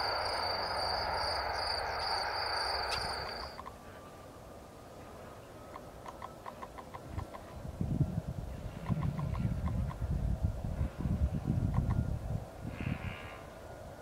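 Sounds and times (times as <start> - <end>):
high insect buzz: 0.0 - 3.6.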